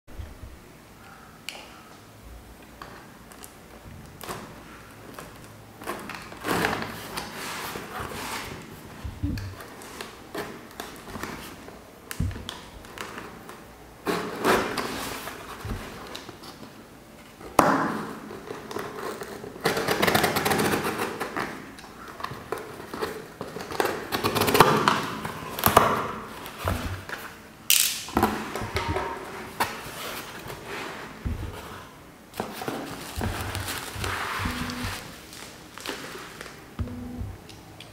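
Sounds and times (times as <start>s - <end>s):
cardboard scraping: 5.8s - 11.6s, 28.6s - 37.4s
sudden knocks: 9.0s - 9.6s, 31.2s - 31.6s, 33.2s - 35.0s, 36.8s - 37.4s
tape tearing and rustling: 32.4s - 36.6s.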